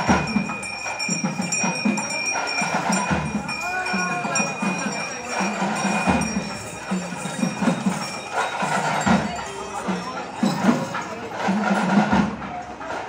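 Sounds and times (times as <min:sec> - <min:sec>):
metallic ringing: 0:00.0 - 0:11.9
crowd noise: 0:00.0 - 0:13.0
steady drum rhythm: 0:00.0 - 0:13.0.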